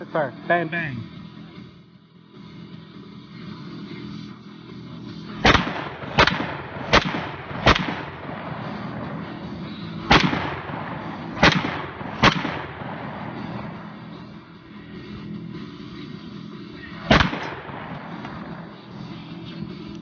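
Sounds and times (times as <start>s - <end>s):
rifle shots with echo: 5.3s - 14.4s, 16.8s - 19.5s.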